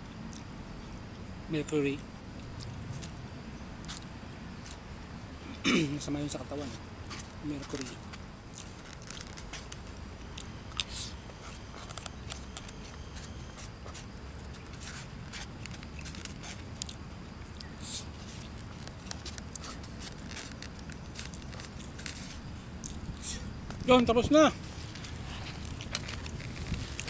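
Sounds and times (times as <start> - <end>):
chewing: 3.8 - 4.8, 8.5 - 23.9, 24.7 - 27.0
small clicks and scrapes: 7.1 - 17.0, 18.2 - 23.0, 24.7 - 27.0.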